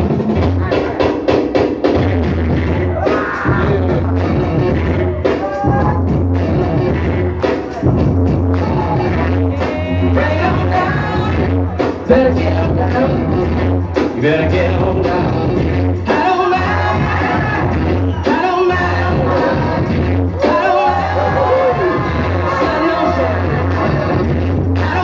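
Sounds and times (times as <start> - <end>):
drum beat: 0.0 - 25.0
loud music with heavy bass: 0.0 - 25.0
person singing: 8.6 - 25.0.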